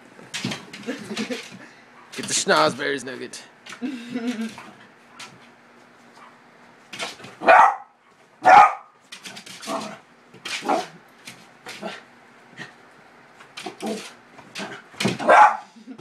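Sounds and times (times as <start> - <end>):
dog barking sharply: 7.4 - 8.9, 15.2 - 15.7.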